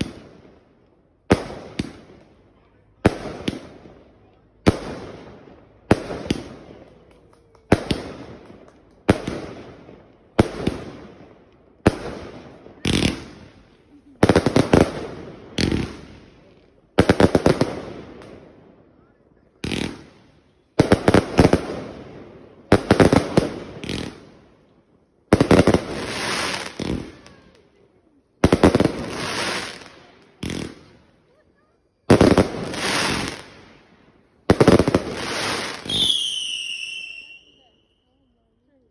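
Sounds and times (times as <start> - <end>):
crackling firework reports: 0.0 - 37.7
firework bangs: 1.2 - 2.4, 3.0 - 18.6, 19.6 - 24.6, 25.3 - 27.7, 28.4 - 31.4, 32.0 - 37.4
whistling firework shot: 35.3 - 38.2.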